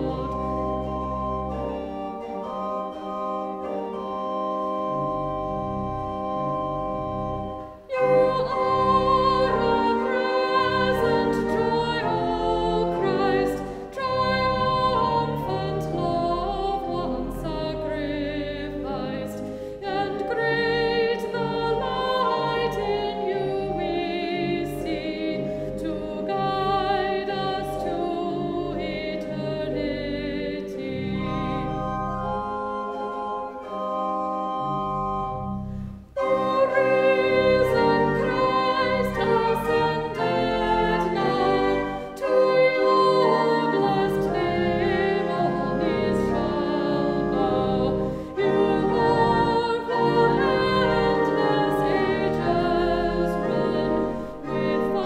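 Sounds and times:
women singing a hymn: 0.0s - 1.6s, 7.8s - 32.4s, 36.2s - 55.0s
organ accompaniment: 0.0s - 55.0s.

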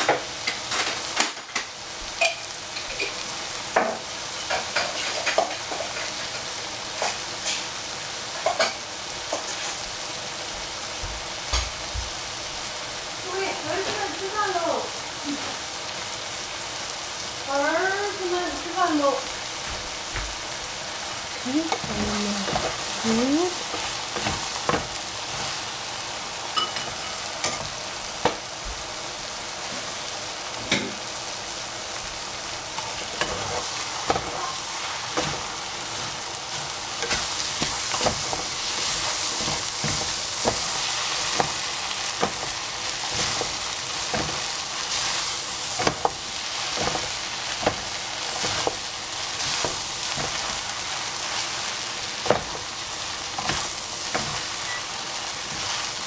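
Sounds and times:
noodles sizzling in a pan: 0.0s - 56.0s
spatula knocking and scraping pan: 1.5s - 6.4s, 21.7s - 23.0s, 23.6s - 25.6s, 32.8s - 51.5s, 52.2s - 54.8s.

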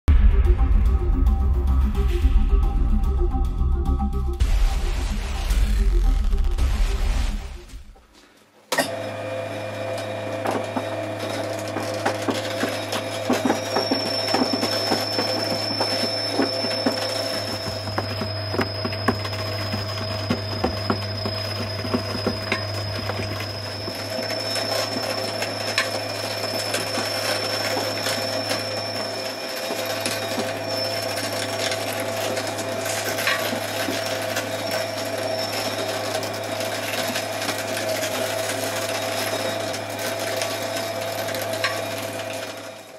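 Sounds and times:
shredder motor humming: 8.9s - 42.9s
faint high whine: 12.2s - 31.8s.

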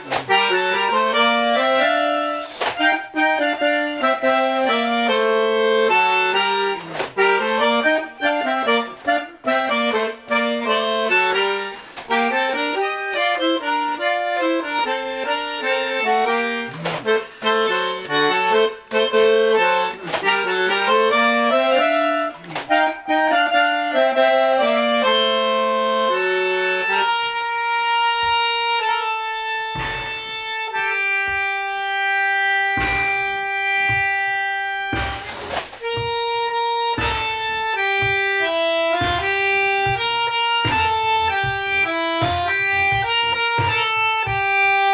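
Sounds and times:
bandoneon melody: 0.0s - 44.9s
sharp knocks: 16.3s - 24.4s, 29.7s - 31.5s, 32.6s - 44.9s.

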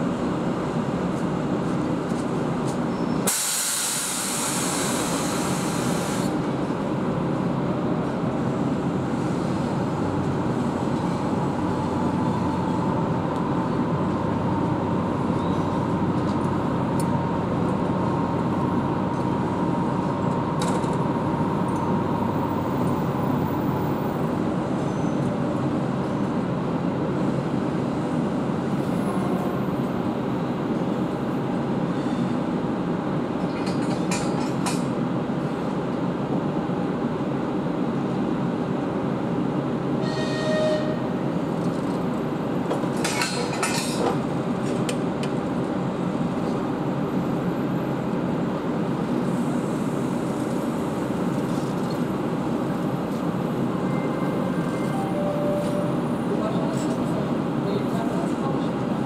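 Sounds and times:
electric locomotive hum: 0.0s - 59.0s
compressed air hissing: 3.3s - 6.3s.

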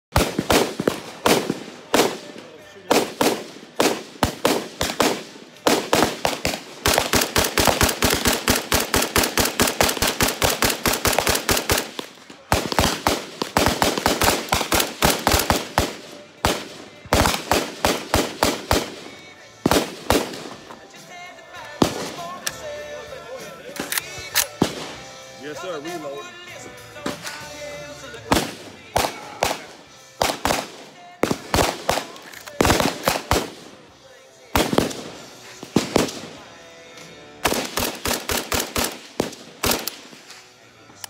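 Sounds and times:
rifle firing: 0.1s - 20.8s, 21.8s - 22.6s, 28.3s - 33.9s, 34.5s - 36.4s, 37.4s - 40.3s.

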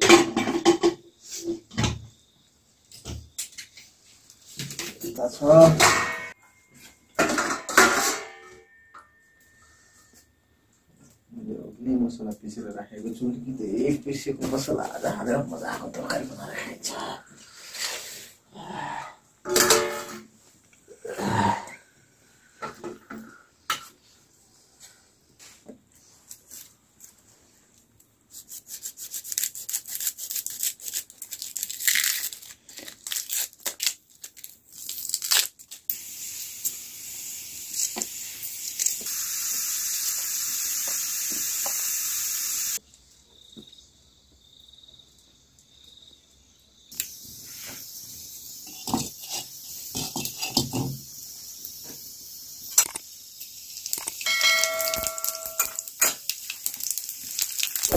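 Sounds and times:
onion skins crackling and tearing: 28.7s - 35.9s, 53.7s - 57.9s
steady hiss: 35.8s - 43.1s, 46.8s - 57.9s.

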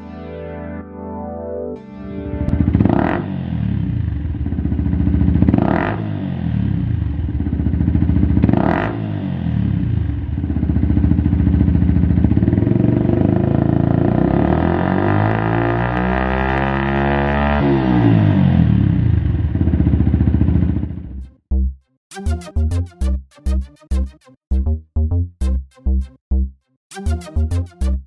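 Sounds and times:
motorcycle engine revving: 2.4s - 21.2s.

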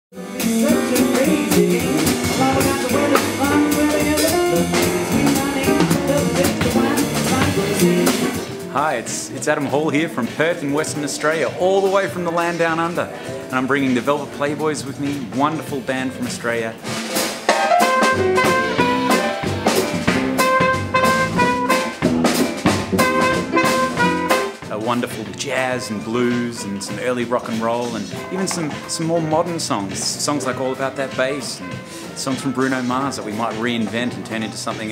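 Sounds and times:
piano: 0.1s - 34.9s
trumpet melody: 0.2s - 9.2s, 17.5s - 33.7s
upright bass: 0.2s - 17.0s, 17.8s - 34.9s
drum kit and cymbals: 0.2s - 34.9s
jazz combo playing: 0.2s - 34.9s.

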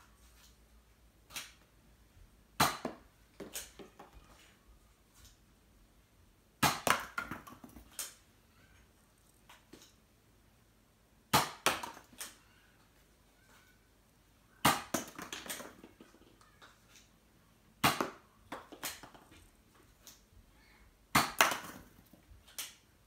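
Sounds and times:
darts clattering among cardboard tubes: 14.6s - 16.3s, 17.8s - 19.4s, 21.1s - 22.8s.

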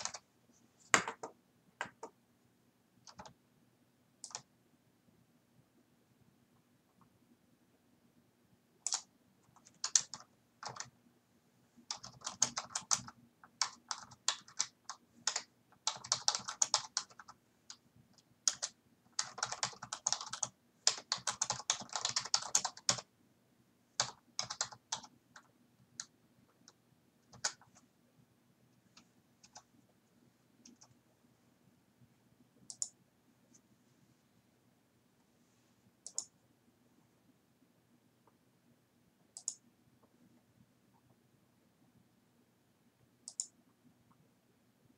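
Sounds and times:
computer keyboard typing: 0.0s - 0.3s, 3.0s - 3.4s, 4.2s - 4.5s, 8.8s - 11.0s, 11.8s - 23.1s, 24.0s - 27.8s, 28.9s - 29.7s, 30.6s - 31.0s, 32.7s - 33.0s, 36.0s - 36.4s, 39.3s - 39.6s, 43.2s - 43.6s.

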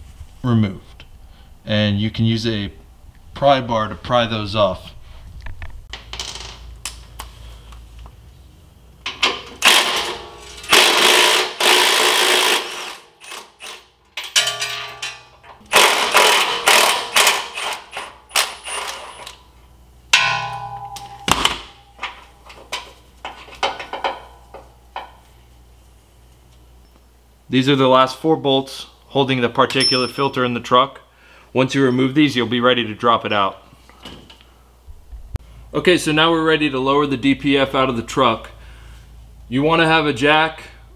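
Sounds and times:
pry bar clanking on metal: 14.1s - 15.7s, 20.2s - 25.2s.

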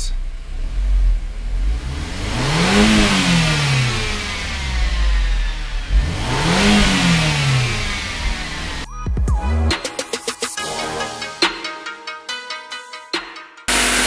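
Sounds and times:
car engine revving: 0.0s - 8.9s, 13.7s - 14.0s
loud intake hiss: 13.7s - 14.0s.

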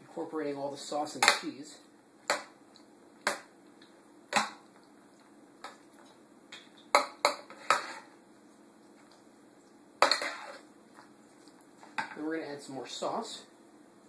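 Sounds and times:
pasta stirred through sauce: 6.8s - 12.0s.

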